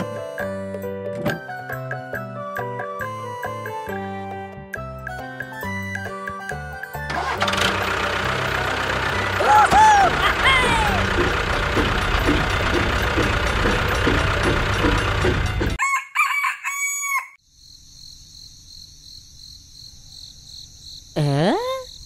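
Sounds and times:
tractor engine running rough: 7.0 - 15.8
rooster crowing: 15.8 - 17.4.

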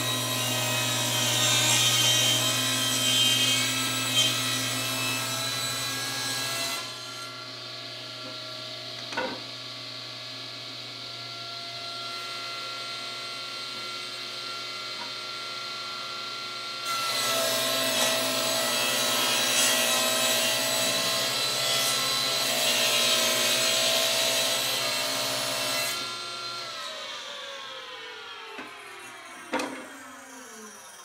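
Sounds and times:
table saw ripping wood: 0.0 - 7.4, 16.8 - 27.4, 28.5 - 31.0
table saw motor whine: 0.0 - 31.0
saw blade spinning down: 26.9 - 31.0.

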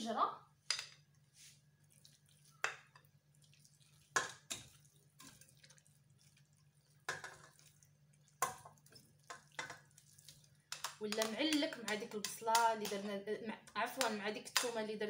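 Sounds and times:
wet meat plops and knocks in pot: 2.6 - 13.1.

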